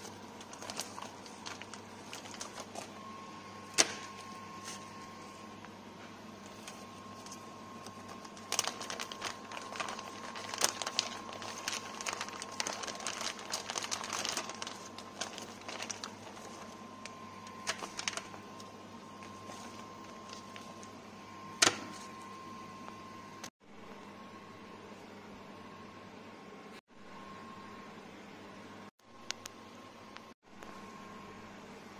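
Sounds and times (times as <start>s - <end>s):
foil tray rustling: 0.0s - 2.9s, 6.5s - 16.8s
plastic packaging crinkling: 0.0s - 3.0s, 6.5s - 20.9s
faint high hum: 0.0s - 31.9s.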